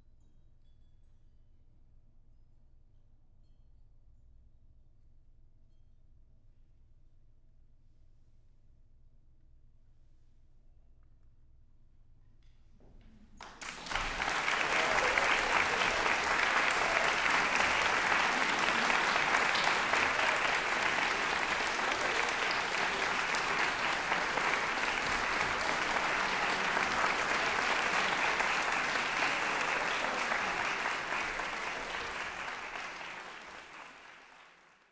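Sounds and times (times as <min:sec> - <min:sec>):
audience applauding: 0:13.4 - 0:34.9.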